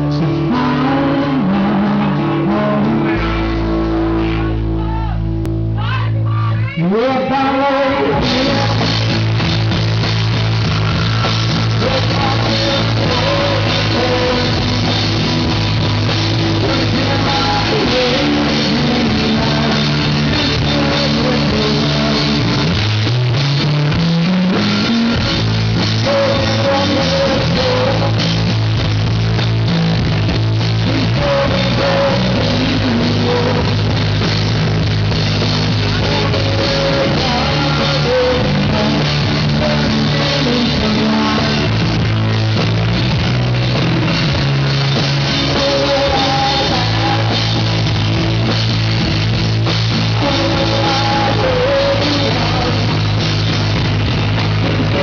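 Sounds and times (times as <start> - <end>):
live rock band playing: 0.0 - 6.2, 6.8 - 55.0
rising run of low notes: 0.0 - 6.4.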